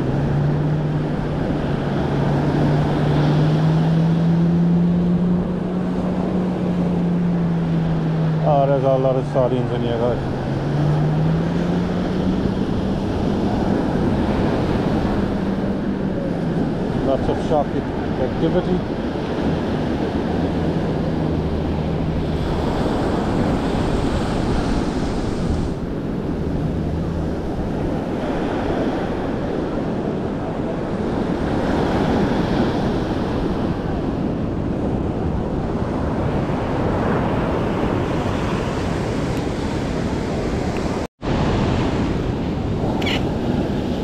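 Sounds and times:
ocean surf breaking: 0.0s - 44.0s
wind buffeting microphone: 0.0s - 44.0s.

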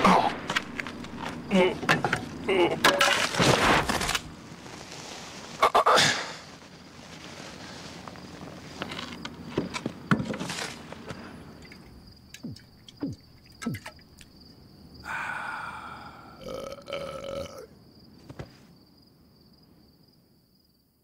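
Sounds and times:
crickets chirring: 0.0s - 21.0s
man belching: 1.5s - 2.9s, 15.1s - 17.7s.

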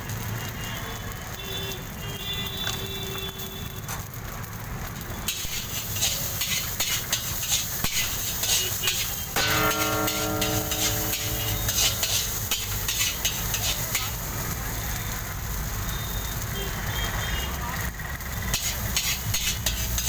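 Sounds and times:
rice sizzling: 0.0s - 20.0s
metal spatula scraping a wok: 5.3s - 14.5s, 18.5s - 20.0s
steady pitched tone: 9.4s - 12.9s.

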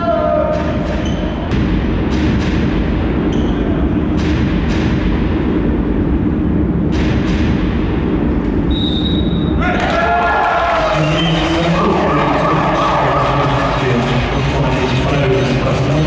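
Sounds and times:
din of arena crowd: 0.0s - 2.6s, 8.7s - 16.0s.

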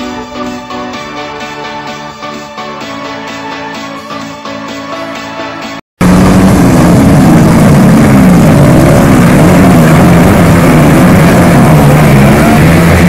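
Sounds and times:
dirt bike engines revving: 6.0s - 13.0s.

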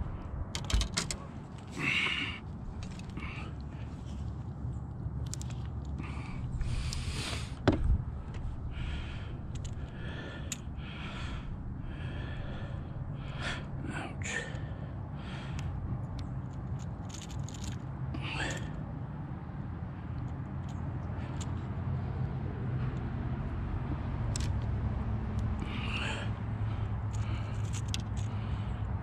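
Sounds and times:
person breathing: 1.7s - 4.3s, 5.9s - 16.0s, 17.1s - 18.9s, 25.4s - 29.0s.

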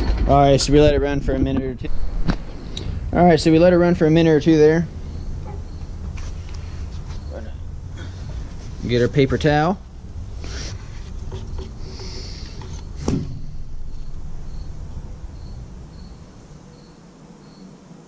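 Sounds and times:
low rumble: 0.0s - 9.1s, 12.9s - 16.5s
insect chirping: 1.8s - 18.0s
brief hiss: 10.4s - 11.2s
sharp knock: 13.0s - 14.7s.

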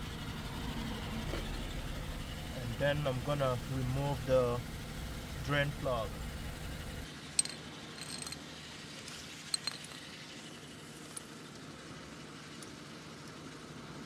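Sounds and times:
car engine idling: 0.0s - 14.0s
ratchet clicking: 7.4s - 8.4s, 9.5s - 10.1s.

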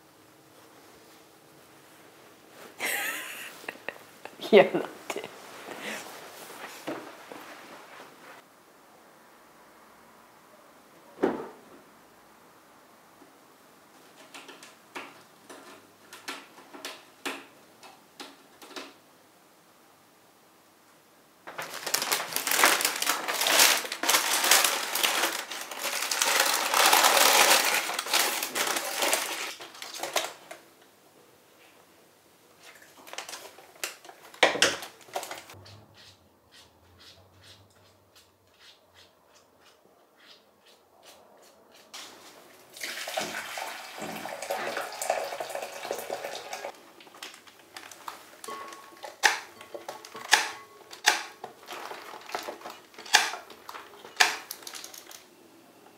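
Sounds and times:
paper rustling: 21.5s - 30.6s, 32.6s - 35.6s, 47.0s - 55.3s
water running: 42.0s - 46.8s.

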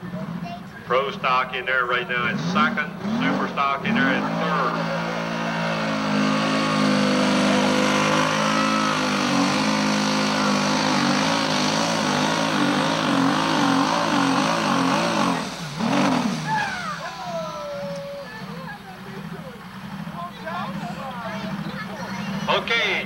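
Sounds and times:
tractor engine revving under load: 0.0s - 23.0s.

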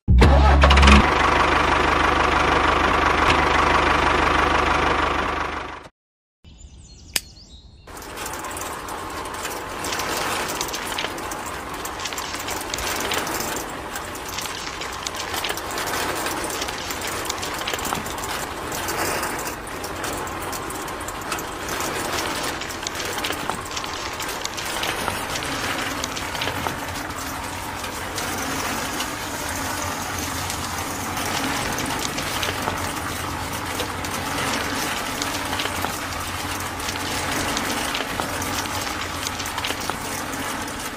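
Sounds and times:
mechanical rattle: 7.9s - 40.9s
sand pouring through sieve: 7.9s - 40.9s.

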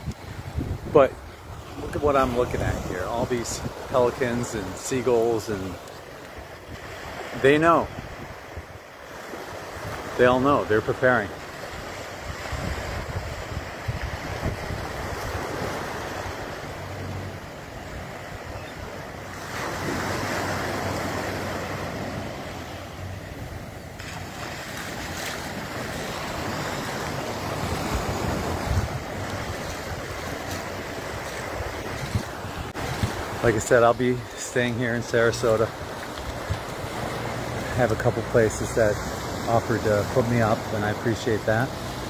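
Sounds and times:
wind rumble on microphone: 0.0s - 3.9s, 7.9s - 8.8s, 11.6s - 18.7s, 21.0s - 33.7s, 35.8s - 38.1s
small waves lapping on sand: 0.0s - 42.0s.

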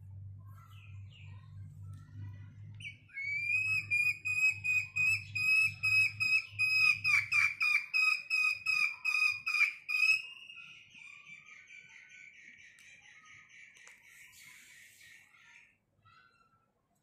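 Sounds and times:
hen whistle-like calls: 2.8s - 10.3s.

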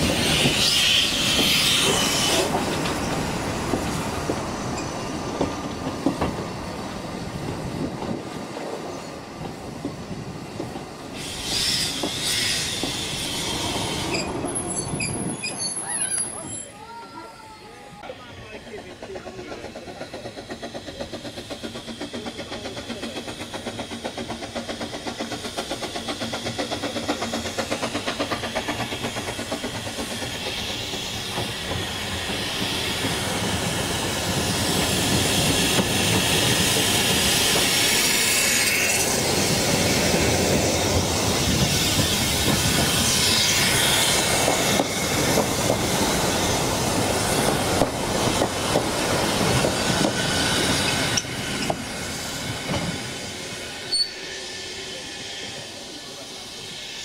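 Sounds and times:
train wheels clattering over joints: 0.0s - 8.8s, 9.4s - 16.6s, 18.6s - 54.0s
steam hissing: 0.0s - 16.4s, 17.9s - 57.0s
steam locomotive exhaust beats: 9.3s - 15.4s, 18.5s - 57.0s.

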